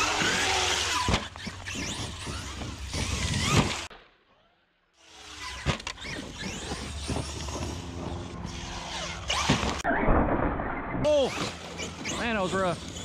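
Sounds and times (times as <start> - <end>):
bangs and scrapes: 0.0 - 3.9, 5.2 - 13.0
electric motor whining: 0.0 - 3.9.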